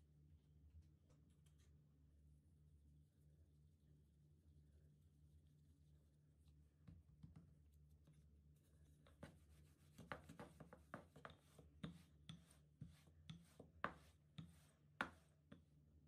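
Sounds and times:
faint low hum: 0:00.0 - 0:10.0
light knocks and taps: 0:06.8 - 0:07.6, 0:09.0 - 0:15.8.

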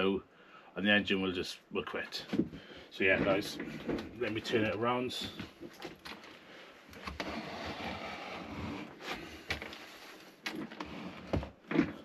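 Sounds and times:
rustling scrape on workbench: 0:07.1 - 0:12.0.

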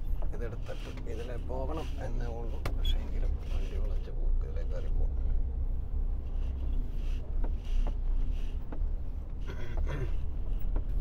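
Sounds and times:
faint clicks and knocks in cab: 0:00.0 - 0:04.0, 0:06.3 - 0:11.0.

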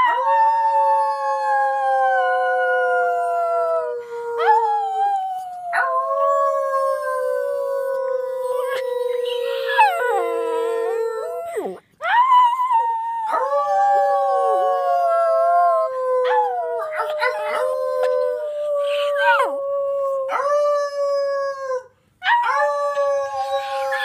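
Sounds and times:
small dog howling: 0:04.4 - 0:20.7, 0:21.5 - 0:24.0.

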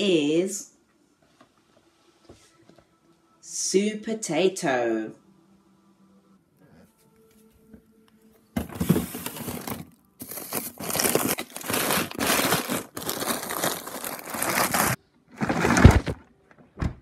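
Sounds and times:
plastic bags crinkling: 0:08.6 - 0:16.2
thump: 0:16.8 - 0:17.0.

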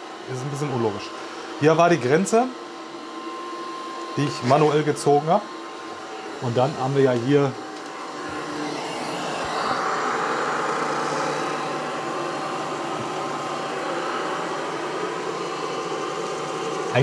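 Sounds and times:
robot vacuum whirring: 0:00.0 - 0:17.0.

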